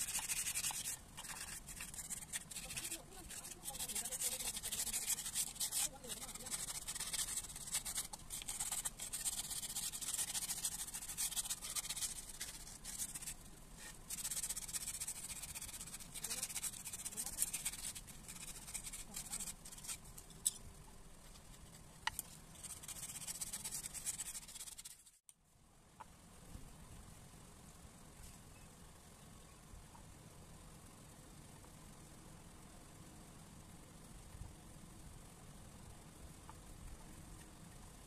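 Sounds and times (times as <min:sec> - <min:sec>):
sandpaper rubbing on wood: 0:00.0 - 0:20.0, 0:22.6 - 0:25.2.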